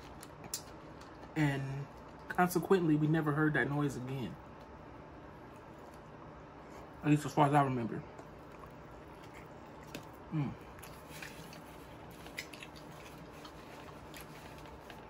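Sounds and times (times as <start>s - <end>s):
person chewing: 0.0s - 2.3s, 8.1s - 15.0s
person humming mm: 10.3s - 10.7s.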